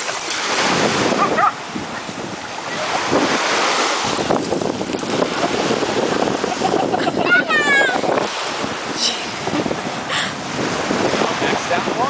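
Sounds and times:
small waves washing onto sand: 0:00.0 - 0:12.0
wind on the microphone: 0:00.0 - 0:12.0
dog barking: 0:01.2 - 0:01.6.

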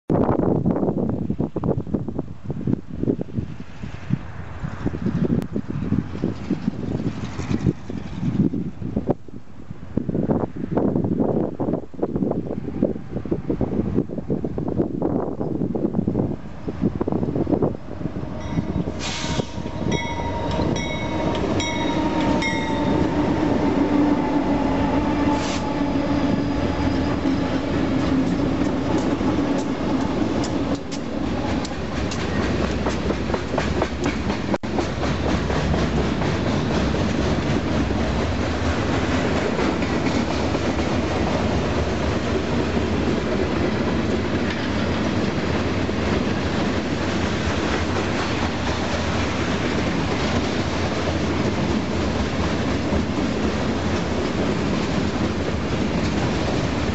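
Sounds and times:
diesel locomotive engine drone: 0:00.4 - 0:56.9
train wheels clattering on rails: 0:06.1 - 0:08.6, 0:18.5 - 0:56.9
short high ringing tones: 0:18.4 - 0:23.0.

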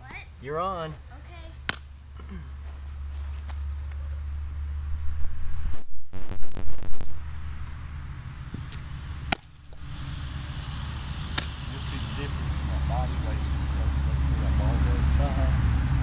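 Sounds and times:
insect chorus trilling: 0:00.0 - 0:16.0
sharp smack: 0:01.6 - 0:01.9, 0:09.3 - 0:09.5, 0:11.3 - 0:11.6
low hum: 0:02.9 - 0:16.0.

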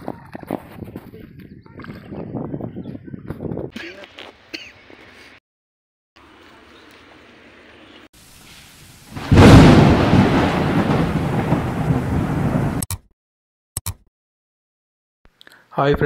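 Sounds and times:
rain hiss: 0:08.2 - 0:10.8
thunderclap rumbling: 0:09.1 - 0:12.8.

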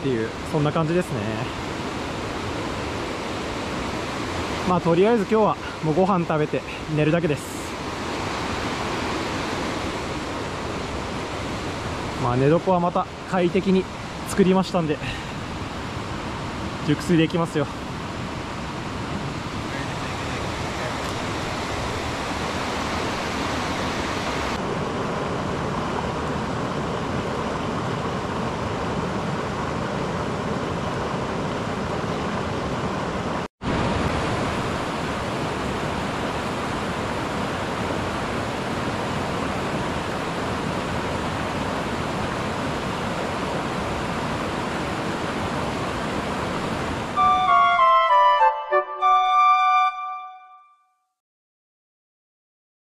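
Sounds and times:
mountain stream rushing: 0:00.0 - 0:49.3.

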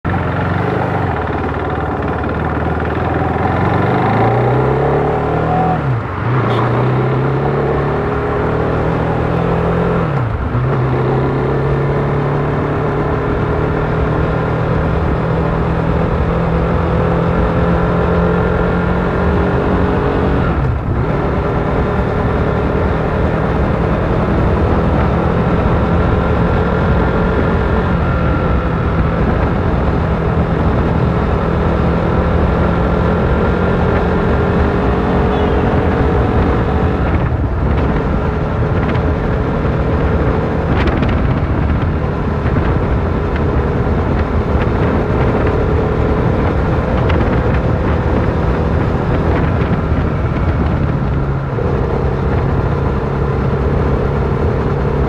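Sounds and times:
motorcycle engine accelerating: 0:00.0 - 0:55.0.

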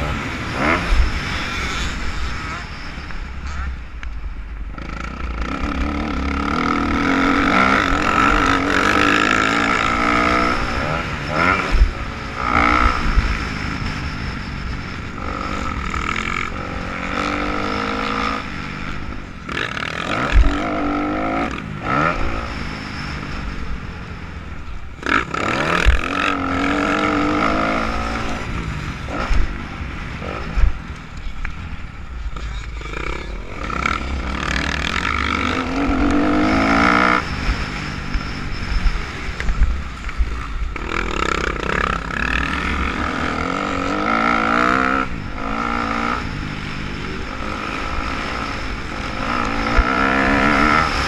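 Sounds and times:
dirt bike engine revving: 0:00.0 - 0:03.6, 0:04.7 - 0:23.8, 0:25.0 - 0:30.8, 0:32.4 - 0:51.0
wind rumbling on microphone: 0:23.1 - 0:51.0.

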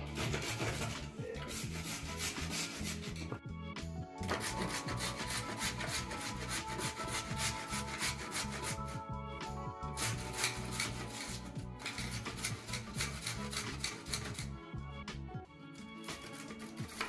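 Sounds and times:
carrot rasping on grater: 0:00.0 - 0:03.3, 0:04.2 - 0:09.0, 0:10.0 - 0:14.5, 0:16.0 - 0:17.0.

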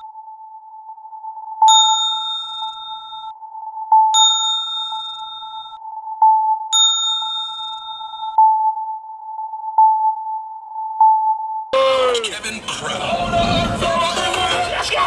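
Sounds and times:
notification bell ding: 0:01.7 - 0:03.3, 0:04.2 - 0:05.8, 0:06.8 - 0:08.4.

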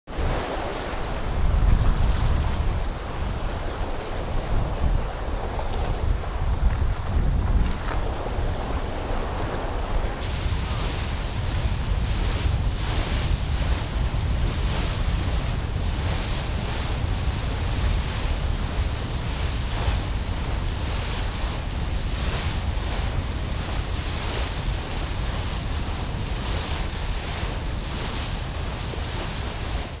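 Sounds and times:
water rushing and splashing: 0:00.1 - 0:30.0
wind buffeting microphone: 0:00.1 - 0:30.0.

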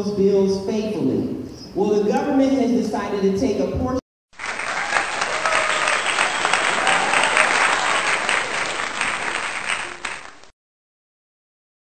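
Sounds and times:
audience applauding: 0:04.4 - 0:10.5.

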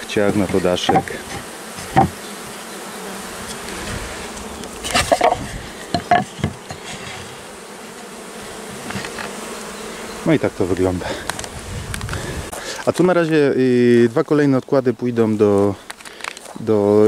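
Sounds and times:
honeybees humming: 0:00.0 - 0:17.0
wooden knocks and clatters: 0:00.3 - 0:02.2, 0:04.8 - 0:07.3.

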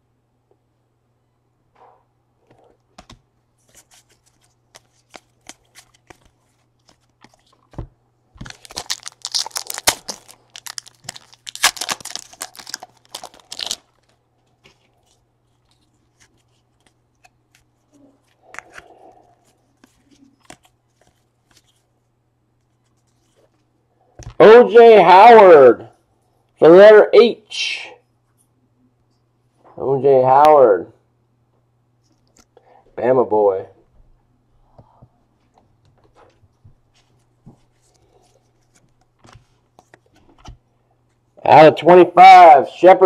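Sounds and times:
foil wrapper tearing and crinkling: 0:08.4 - 0:14.2.

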